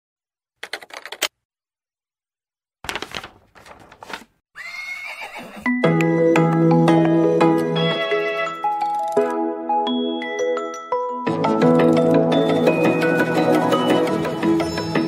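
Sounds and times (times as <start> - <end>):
horse whinnying: 4.6 - 5.7
bright mallet percussion music: 9.9 - 13.9.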